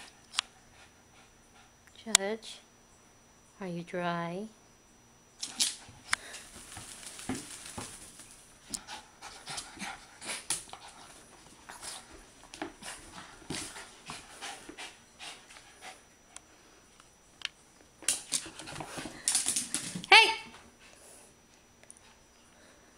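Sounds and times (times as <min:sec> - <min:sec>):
dog scuffing on floor and towel: 0:06.4 - 0:08.4
dog panting: 0:08.7 - 0:16.2.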